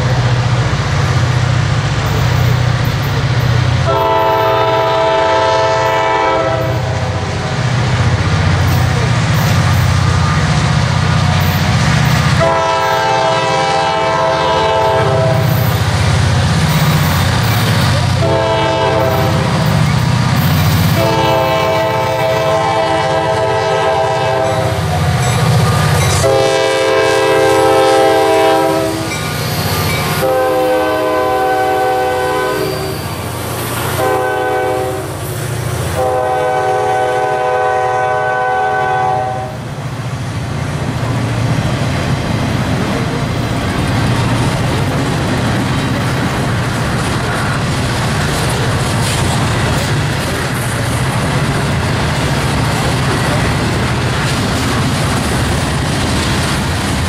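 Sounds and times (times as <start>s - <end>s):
boxcars rolling past: 0.0s - 37.5s, 39.5s - 57.0s
low rumble of locomotive engine: 0.0s - 57.0s
locomotive air horn blasts: 3.8s - 7.2s, 12.4s - 15.6s, 18.2s - 19.7s, 20.9s - 24.9s, 25.6s - 29.2s, 30.1s - 33.1s, 33.8s - 35.2s, 36.0s - 39.7s.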